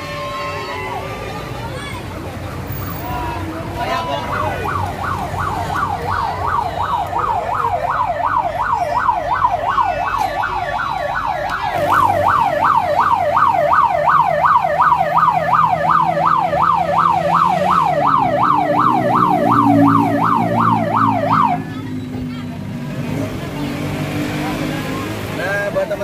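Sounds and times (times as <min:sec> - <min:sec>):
siren yelping: 0:04.2 - 0:21.8
bus engine running: 0:09.0 - 0:26.0.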